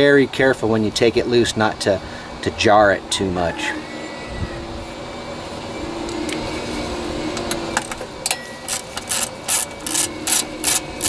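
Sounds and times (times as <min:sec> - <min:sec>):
socket ratchet clicking: 0:08.7 - 0:11.0.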